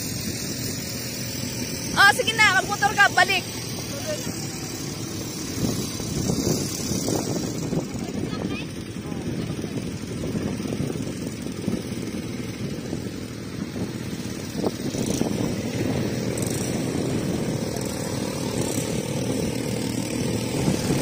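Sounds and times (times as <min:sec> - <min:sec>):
quad bike engines rumbling: 0:00.0 - 0:21.0.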